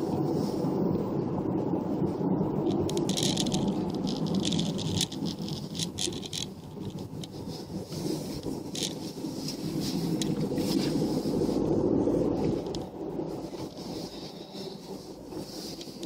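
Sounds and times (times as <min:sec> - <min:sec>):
car engine and tyres rumbling: 0:00.0 - 0:16.0
rattling clicks: 0:02.7 - 0:07.3, 0:08.4 - 0:09.0.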